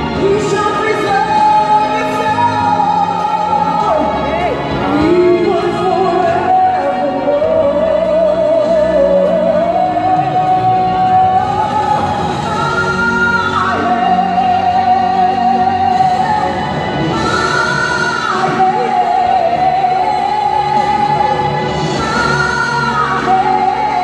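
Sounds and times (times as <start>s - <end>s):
woman singing gospel song: 0.0s - 24.0s.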